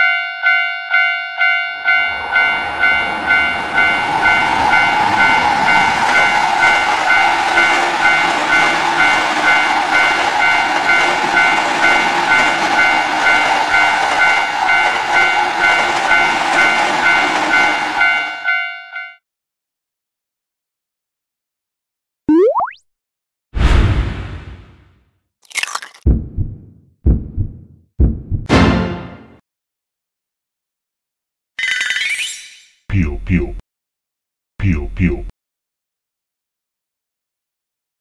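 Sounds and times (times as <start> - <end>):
level-crossing bell ringing: 0.0 - 19.2
train running past: 1.9 - 18.5.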